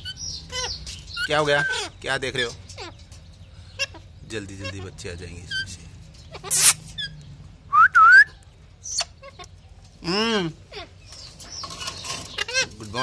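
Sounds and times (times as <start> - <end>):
parakeet screeching and whistling: 6.3 - 7.2.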